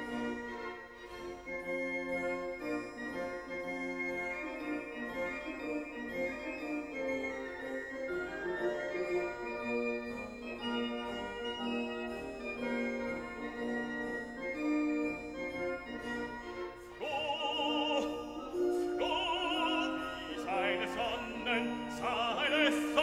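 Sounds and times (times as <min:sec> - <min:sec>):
classical singing with vibrato: 0:17.0 - 0:23.0.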